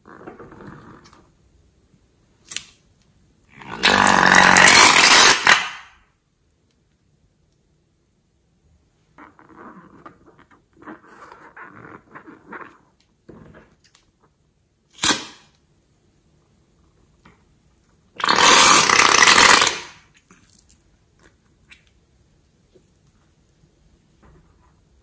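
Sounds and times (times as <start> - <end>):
balloon snapping: 3.8 - 5.9, 15.0 - 15.5
liquid spurting into slime: 18.2 - 21.4.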